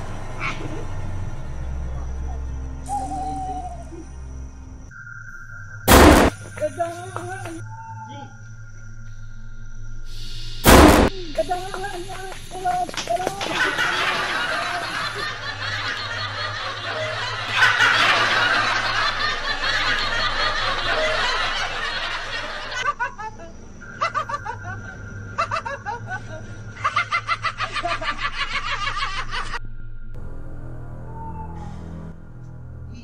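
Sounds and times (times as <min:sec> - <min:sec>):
loud jumbled laughter: 0:12.9 - 0:29.6.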